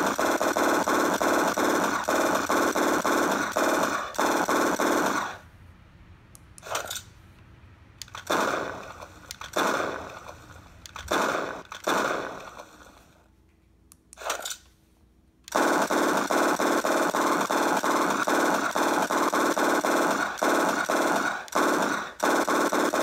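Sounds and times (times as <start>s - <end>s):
automatic gunfire burst: 0.0s - 5.4s, 8.1s - 13.0s, 15.5s - 23.0s
rifle sound effects: 0.0s - 5.4s, 6.6s - 7.2s, 8.0s - 13.2s, 14.2s - 14.7s, 15.5s - 23.0s.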